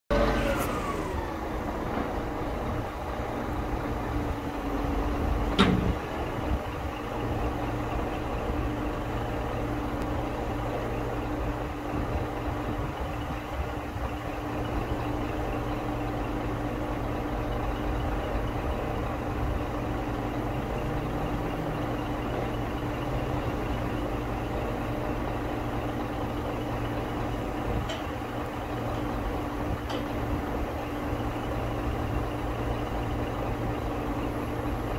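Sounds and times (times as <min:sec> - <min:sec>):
diesel truck engine running: 0:00.0 - 0:34.9
hydraulic whine: 0:00.1 - 0:02.9.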